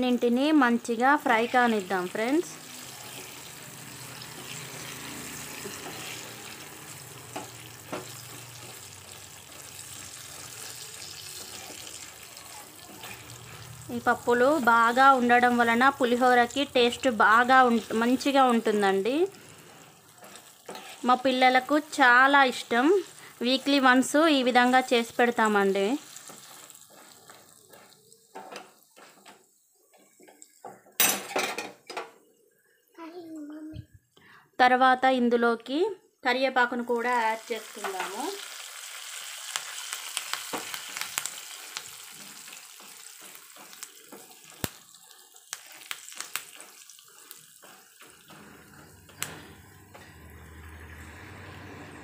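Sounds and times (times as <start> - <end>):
food sizzling in hot oil: 0.0 - 31.8, 36.6 - 52.0
spoon stirring in a pan: 5.5 - 13.8, 17.0 - 22.0, 22.6 - 31.0, 40.4 - 50.2
steel ladle stirring: 19.4 - 21.1.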